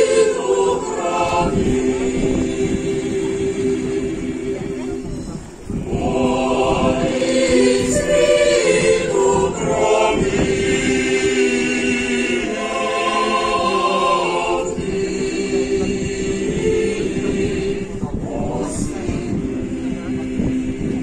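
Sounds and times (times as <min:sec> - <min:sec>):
mixed choir singing: 0:00.0 - 0:21.0.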